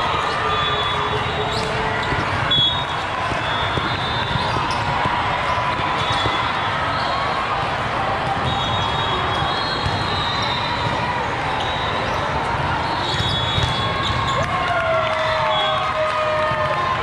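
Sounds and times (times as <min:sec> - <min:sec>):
referee whistles: 0:00.2 - 0:04.9, 0:05.9 - 0:07.5, 0:08.4 - 0:11.0, 0:11.6 - 0:14.5, 0:15.2 - 0:15.9
volleyballs smacking and bouncing: 0:01.2 - 0:06.7, 0:07.6 - 0:14.8.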